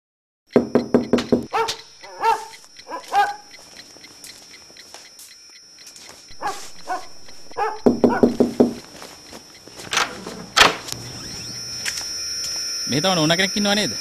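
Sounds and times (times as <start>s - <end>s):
dog barking: 1.5s - 3.5s, 6.3s - 8.5s.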